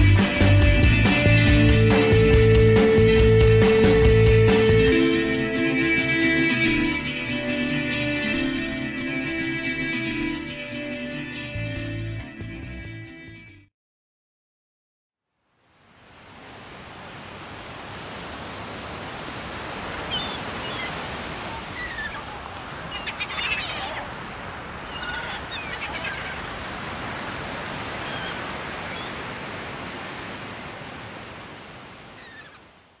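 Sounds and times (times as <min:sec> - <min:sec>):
surf washing: 0:00.2 - 0:08.8, 0:15.6 - 0:33.0
short high bird calls: 0:20.0 - 0:24.1, 0:24.8 - 0:26.5, 0:27.6 - 0:29.2, 0:32.2 - 0:32.7.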